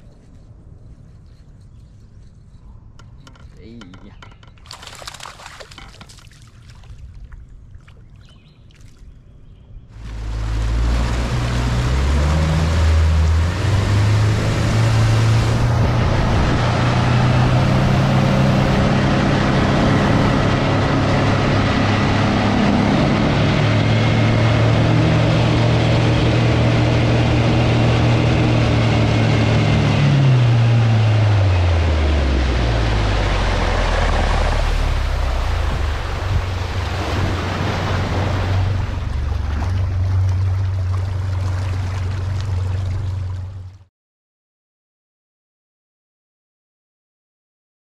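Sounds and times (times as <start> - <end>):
outboard motor running: 9.9 - 43.9
wind and water hiss: 10.0 - 21.3, 32.6 - 43.8.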